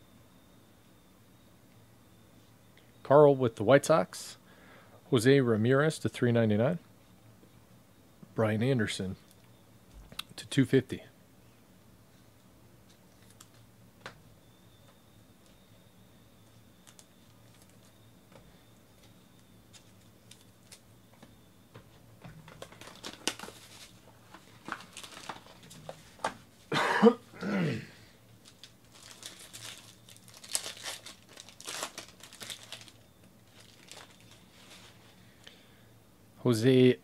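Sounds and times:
plastic wrap crinkling and tearing: 0:22.6 - 0:25.9, 0:28.4 - 0:35.0
person coughing: 0:26.7 - 0:28.0.

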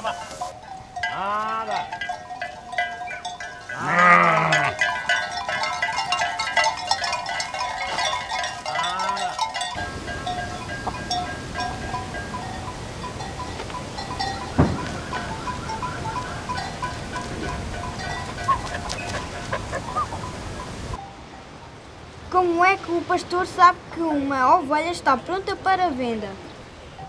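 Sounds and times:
bells clinking: 0:00.0 - 0:21.6
steady outdoor hiss: 0:00.0 - 0:27.0
sheep bleating: 0:03.8 - 0:04.8.

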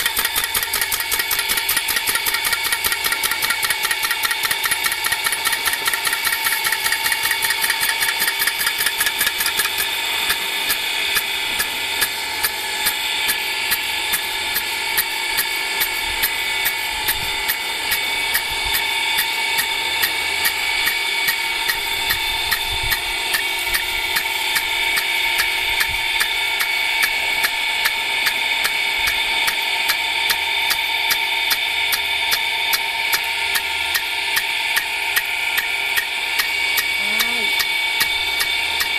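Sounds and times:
sprinkler arm ticking: 0:00.0 - 0:14.3.

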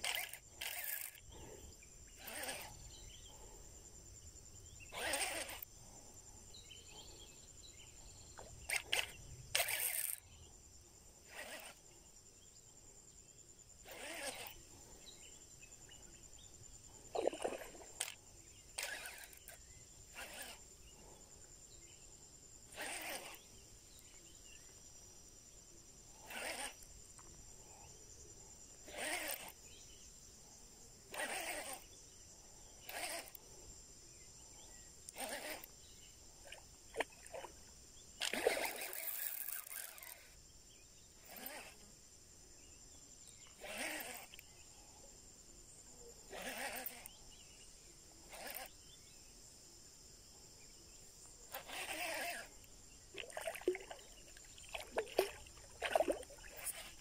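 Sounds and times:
fishing reel cranking: 0:00.0 - 0:01.3, 0:02.2 - 0:02.9, 0:05.0 - 0:05.7, 0:08.7 - 0:10.2, 0:11.3 - 0:11.8, 0:13.8 - 0:14.6, 0:18.8 - 0:20.6, 0:22.7 - 0:23.4, 0:26.2 - 0:26.8, 0:28.8 - 0:29.6, 0:31.1 - 0:31.9, 0:32.8 - 0:33.4, 0:35.1 - 0:35.7, 0:38.2 - 0:40.3, 0:41.2 - 0:41.8, 0:43.6 - 0:44.4, 0:46.3 - 0:47.1, 0:48.3 - 0:48.7, 0:51.5 - 0:52.6, 0:55.2 - 0:57.0
insects droning: 0:00.0 - 0:57.0.

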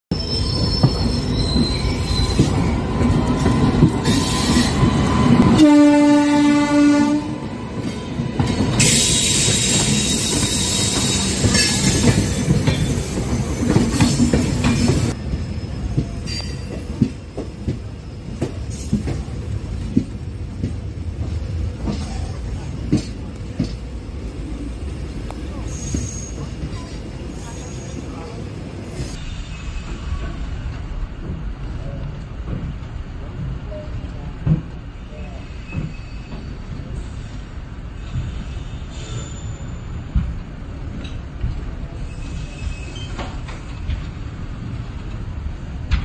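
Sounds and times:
passing coaches hissing and squealing: 0:00.1 - 0:17.0, 0:24.4 - 0:30.5, 0:35.1 - 0:40.1, 0:41.9 - 0:43.5
train wheels clattering on rails: 0:00.5 - 0:05.6, 0:07.4 - 0:24.0, 0:29.0 - 0:34.9, 0:35.6 - 0:37.3, 0:40.0 - 0:46.0
train horn blast: 0:05.4 - 0:07.4.

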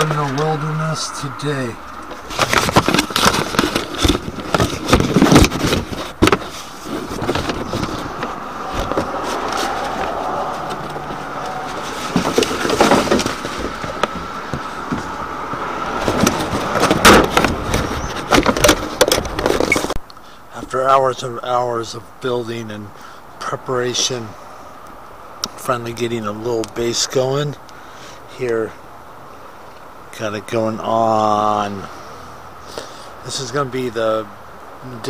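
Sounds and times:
steady noise rush: 0:00.0 - 0:19.5
paper bag rustling: 0:02.0 - 0:14.8.

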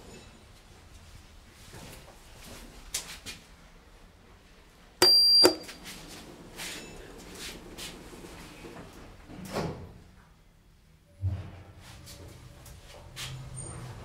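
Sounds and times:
short electronic beep: 0:05.0 - 0:05.8.

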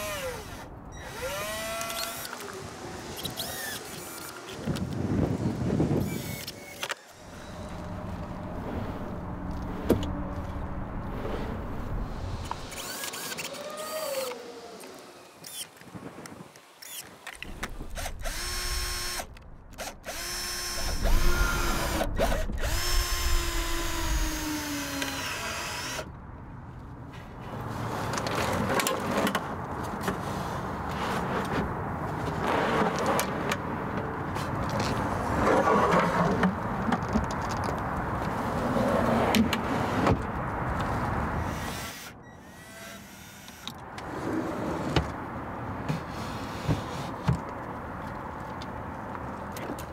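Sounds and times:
cordless drill driving screws: 0:00.0 - 0:04.6, 0:17.9 - 0:26.1.

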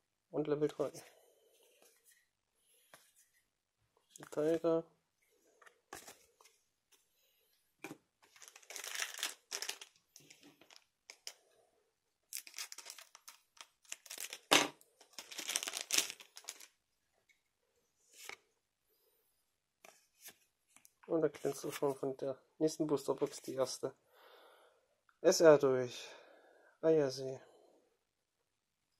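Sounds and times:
foil wrapper tearing and crinkling: 0:08.4 - 0:09.9, 0:12.4 - 0:16.7.

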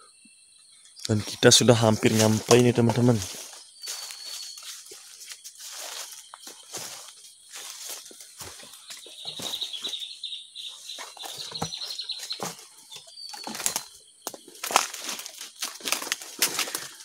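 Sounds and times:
footsteps through dry leaves: 0:01.2 - 0:10.2, 0:13.5 - 0:17.0.

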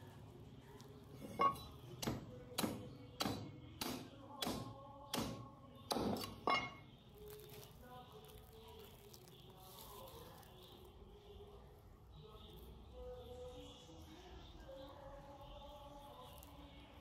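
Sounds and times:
cleaver chopping meat: 0:02.0 - 0:06.4.

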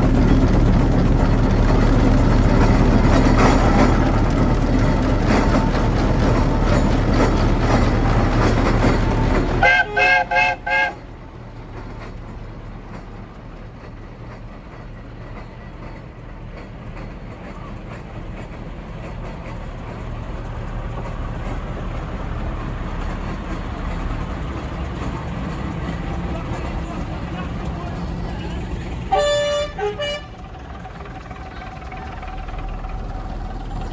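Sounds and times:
traction engine rumbling past: 0:00.0 - 0:33.9
steam whistle tooting: 0:09.6 - 0:11.0, 0:29.1 - 0:30.4
loud steady rush: 0:19.8 - 0:33.9.

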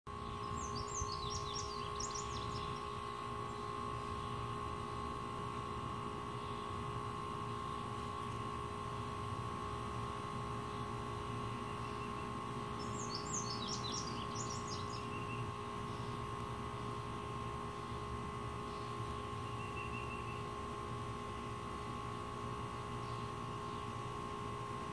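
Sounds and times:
steady hum: 0:00.1 - 0:24.9
songbird twittering: 0:00.2 - 0:03.7, 0:11.6 - 0:16.2, 0:18.7 - 0:20.5.

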